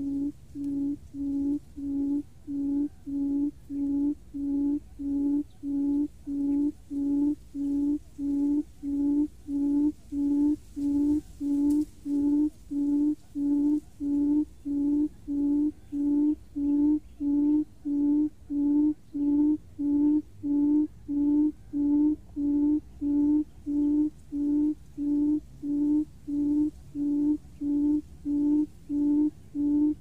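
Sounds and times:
low booming hoot call: 0:00.0 - 0:30.0.

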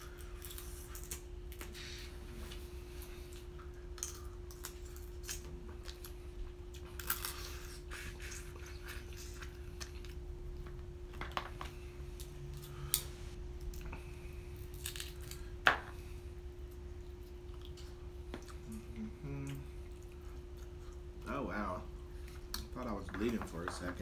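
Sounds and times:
chewing: 0:00.0 - 0:10.9, 0:16.6 - 0:21.2
crab shells cracking: 0:14.6 - 0:15.5.

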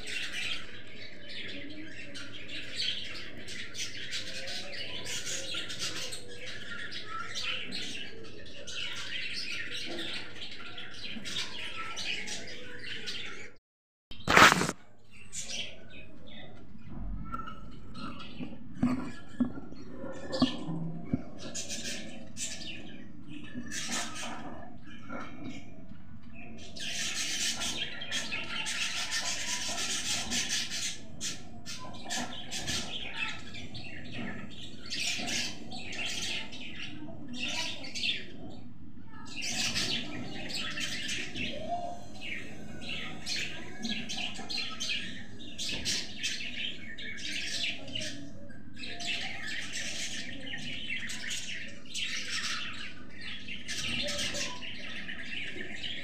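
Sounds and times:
parrot chicks chirping: 0:26.4 - 0:56.0.

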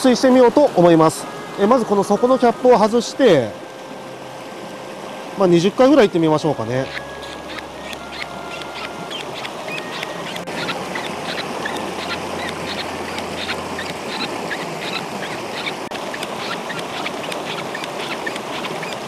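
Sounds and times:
river rushing: 0:00.0 - 0:19.0
hand pump squeaking: 0:06.8 - 0:19.0.

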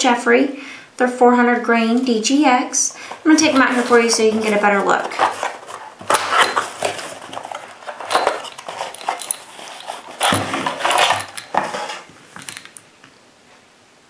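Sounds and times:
plastic tray scraping: 0:03.1 - 0:12.1
cardboard sliding and rustling: 0:03.2 - 0:12.2.

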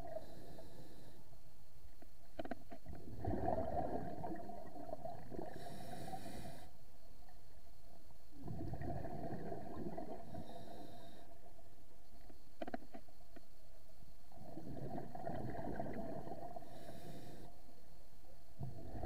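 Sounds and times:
diver exhaling bubbles: 0:03.1 - 0:05.6, 0:08.4 - 0:10.2.

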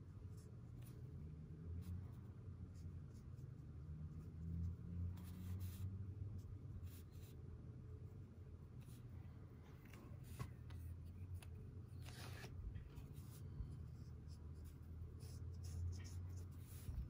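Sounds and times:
faint low hum: 0:00.0 - 0:17.0
brush pen scratching on paper: 0:05.0 - 0:07.4, 0:08.0 - 0:17.0.

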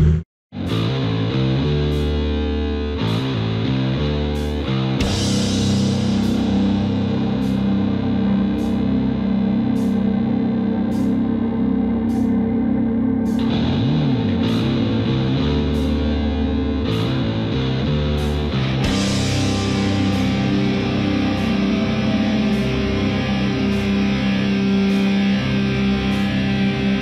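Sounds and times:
distorted electric guitar: 0:00.0 - 0:27.0.

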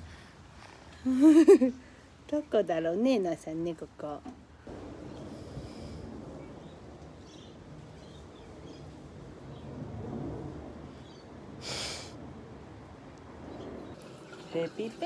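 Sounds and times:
low rumble: 0:04.6 - 0:11.6.

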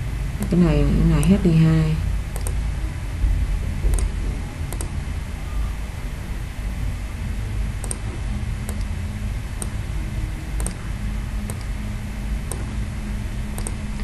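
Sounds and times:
low background rumble: 0:00.0 - 0:14.0
computer mouse clicks: 0:02.3 - 0:02.6, 0:03.9 - 0:05.0, 0:07.8 - 0:09.0, 0:09.6 - 0:09.8, 0:10.6 - 0:11.7, 0:12.4 - 0:12.7, 0:13.6 - 0:14.0.

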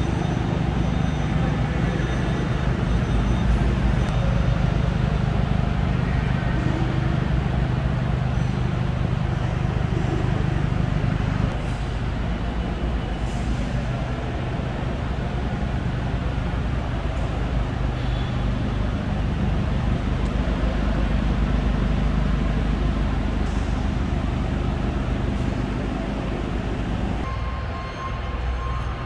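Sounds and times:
factory hall rumble and hum: 0:00.0 - 0:29.0.

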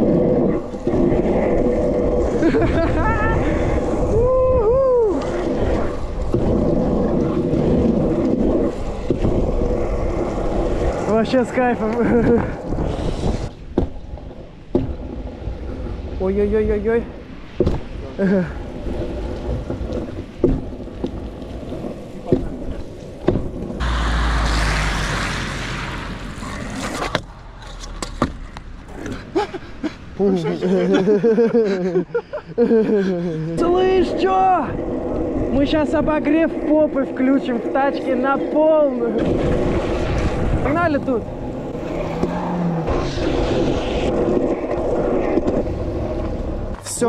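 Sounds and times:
wind buffeting microphone: 0:00.0 - 0:23.9, 0:25.2 - 0:47.0
scooter wheels rolling on wet asphalt: 0:00.0 - 0:47.0
person whooping: 0:03.0 - 0:05.4
truck tyres hissing on wet road: 0:23.8 - 0:26.6, 0:41.2 - 0:46.8.

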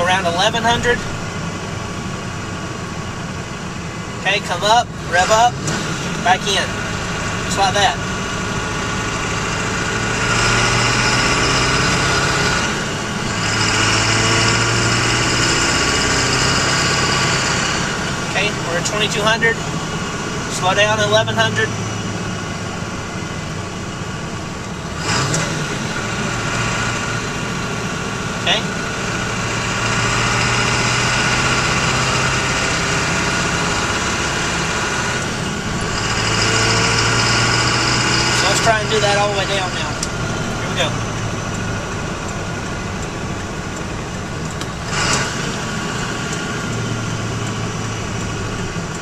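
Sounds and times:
diesel engine accelerating: 0:00.0 - 0:49.0.

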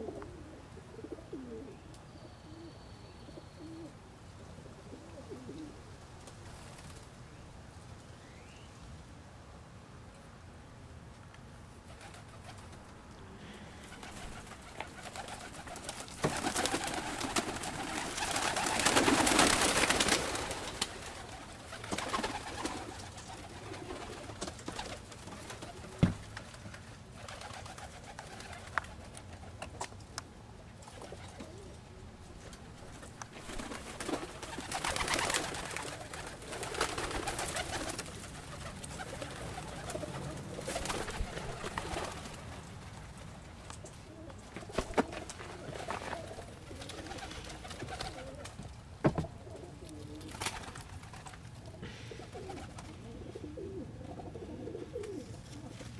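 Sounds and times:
pigeons cooing: 0:00.0 - 0:02.8, 0:03.4 - 0:05.8, 0:11.9 - 0:26.3, 0:30.8 - 0:42.5, 0:43.9 - 0:55.9.

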